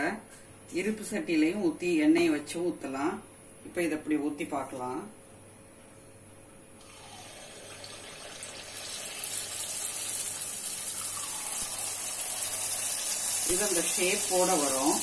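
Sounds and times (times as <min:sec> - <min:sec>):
batter sizzling in hot oil: 0:07.2 - 0:15.0.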